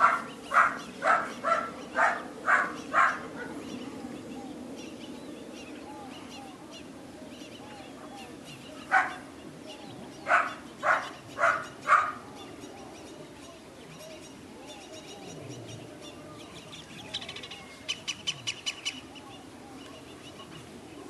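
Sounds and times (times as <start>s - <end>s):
puppy barking: 0.0s - 3.6s, 8.9s - 9.2s, 10.3s - 12.2s
birds chirping: 0.0s - 21.0s.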